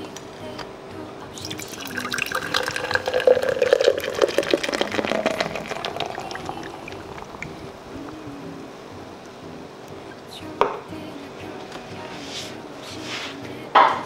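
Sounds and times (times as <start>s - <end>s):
drink pouring and fizzing: 1.4s - 7.6s.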